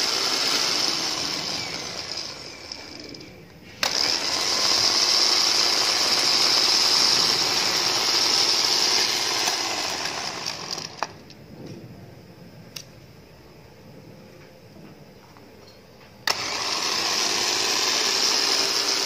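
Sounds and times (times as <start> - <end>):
electric winch whining: 0.0 - 11.2, 16.2 - 19.0.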